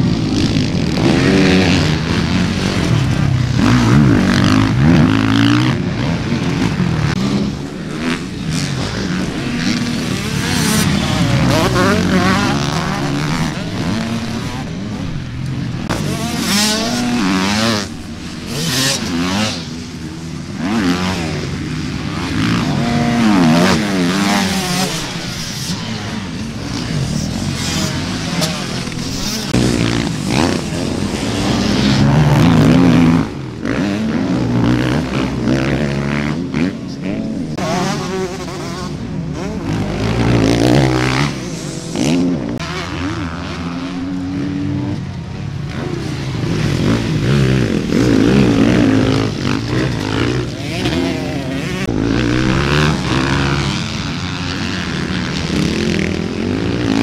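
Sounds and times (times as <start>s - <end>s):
dirt bike engines revving: 0.0s - 57.0s.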